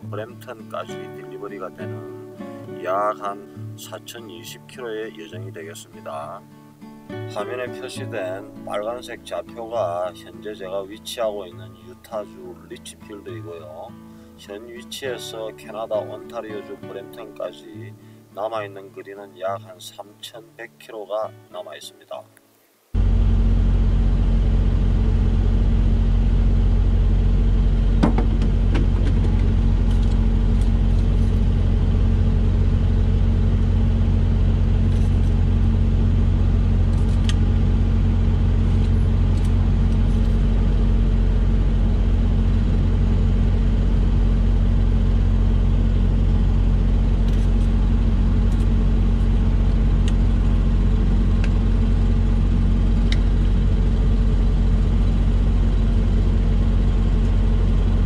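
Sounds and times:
diesel truck engine idling: 23.0 - 58.0
sharp clicks in engine bay: 28.0 - 31.5, 50.0 - 50.2, 53.0 - 53.4.

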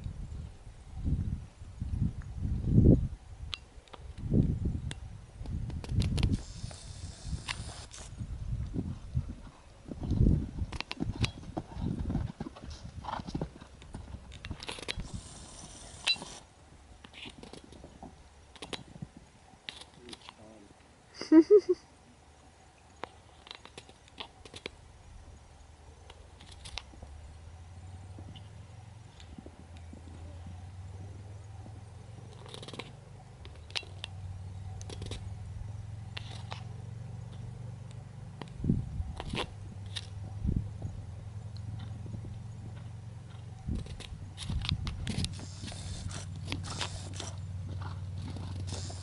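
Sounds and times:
brief hiss: 6.3 - 8.2
horse hoofbeats on sand: 8.8 - 14.6, 41.7 - 49.0.

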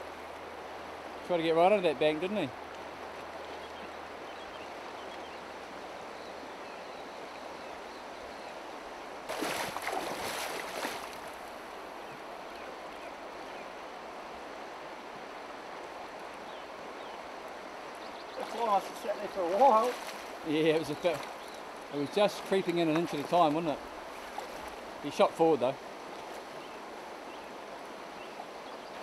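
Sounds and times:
river running over stones: 0.0 - 29.0
splashing footsteps in water: 9.3 - 11.4, 18.4 - 20.4.

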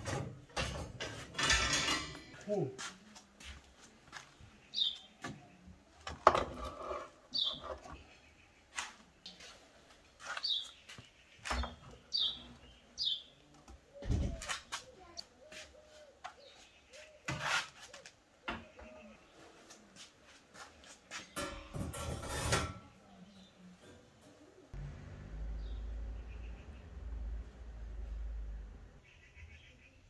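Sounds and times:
metal baking trays clanking: 0.0 - 2.4, 21.3 - 23.0
small birds chirping: 3.6 - 6.2, 7.2 - 20.0, 23.0 - 24.7, 25.5 - 27.1.

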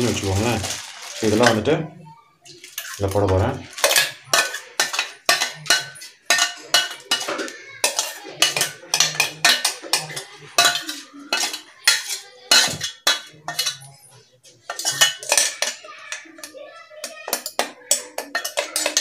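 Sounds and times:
metal spoon scraping steel jar: 3.7 - 14.0, 14.6 - 16.5.

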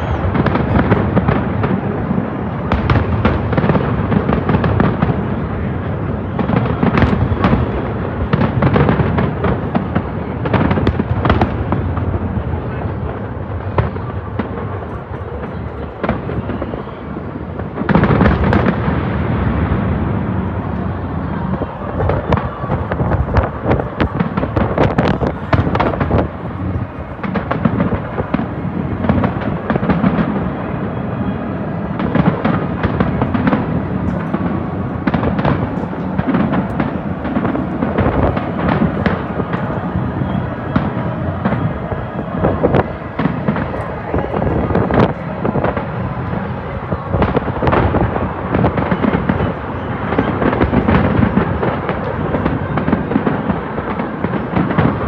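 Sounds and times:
low rumbling boom: 17.5 - 51.5.

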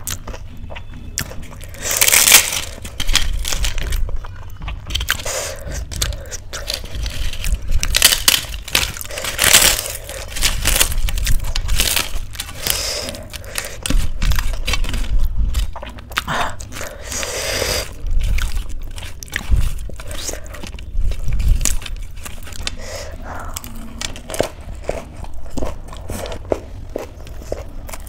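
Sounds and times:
crisp papad crackling and crunching: 0.0 - 28.0.

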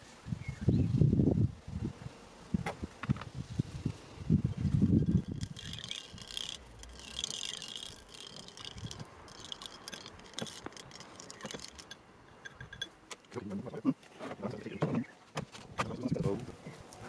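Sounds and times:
insects chirping: 4.0 - 13.4
stick stirring liquid in glass: 4.9 - 13.4.

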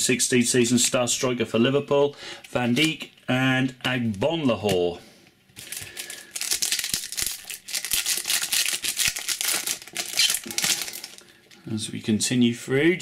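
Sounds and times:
foil wrapper crinkling: 5.6 - 11.6.

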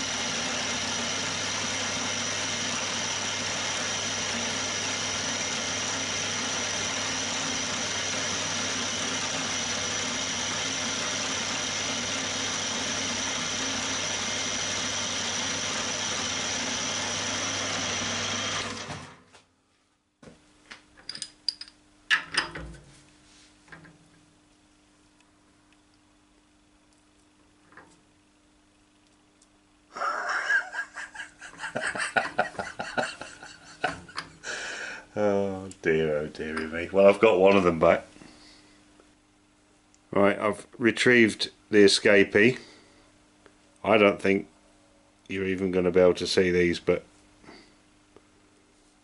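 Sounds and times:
milling machine spindle running: 0.0 - 19.2.

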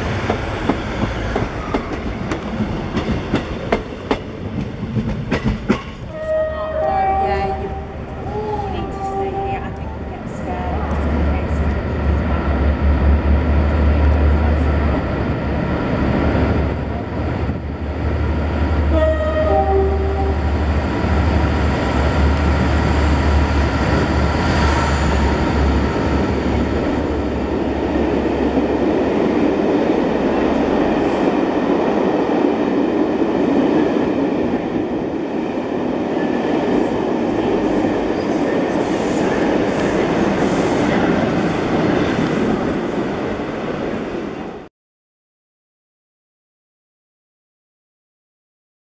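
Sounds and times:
train wheels rushing and rattling: 0.0 - 6.1.

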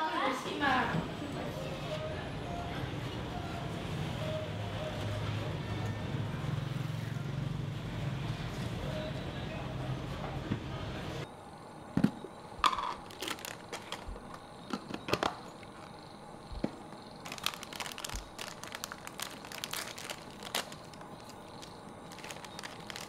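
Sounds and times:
plastic bag crinkling: 12.8 - 14.2, 17.1 - 23.0.

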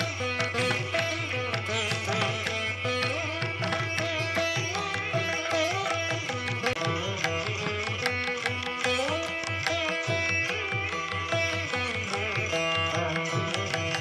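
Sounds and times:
plucked string melody: 0.0 - 14.0.

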